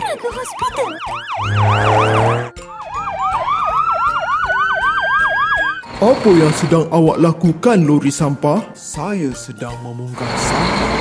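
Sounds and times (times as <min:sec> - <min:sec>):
siren yelp: 0:00.0 - 0:05.9
siren wail: 0:00.4 - 0:05.9
low horn blast: 0:01.3 - 0:02.6.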